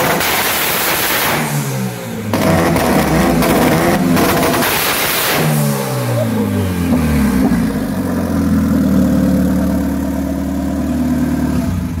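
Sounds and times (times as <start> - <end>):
car engine idling: 5.7 - 12.0.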